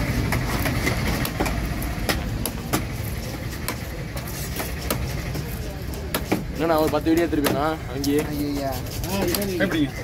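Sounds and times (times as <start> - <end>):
cleaver chopping on wooden block: 6.1 - 8.3.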